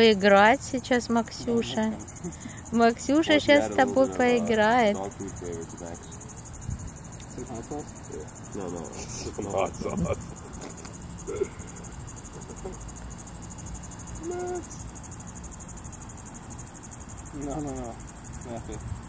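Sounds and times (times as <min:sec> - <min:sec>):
insect chorus trilling: 0:00.0 - 0:19.0
quiet voices: 0:07.3 - 0:12.9, 0:14.2 - 0:14.8.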